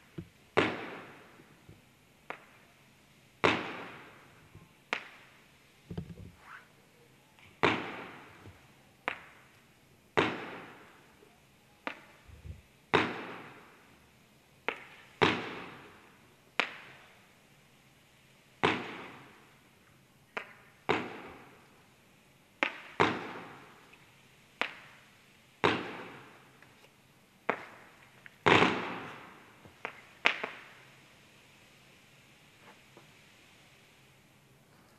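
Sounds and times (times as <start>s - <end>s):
firework tubes popping: 0.0s - 6.8s, 7.4s - 11.2s, 11.8s - 13.9s, 14.6s - 17.2s, 20.2s - 21.8s, 22.6s - 31.3s
firework rushing hiss: 3.4s - 11.2s, 22.6s - 34.9s.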